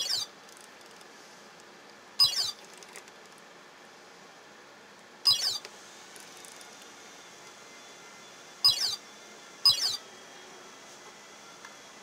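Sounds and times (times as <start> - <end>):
control panel chirping: 0.0 - 0.3, 2.2 - 2.6, 5.3 - 5.7, 8.6 - 9.0, 9.7 - 10.0.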